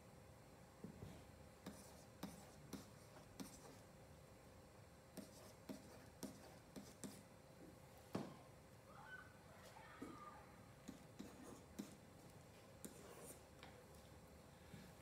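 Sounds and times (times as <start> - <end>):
stylus tapping and scratching on tablet: 1.6 - 3.9, 5.2 - 7.3, 10.8 - 14.0.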